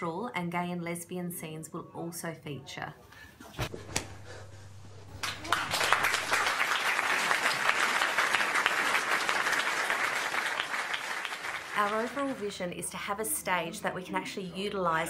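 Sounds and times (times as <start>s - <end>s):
audience applauding: 5.1s - 12.6s.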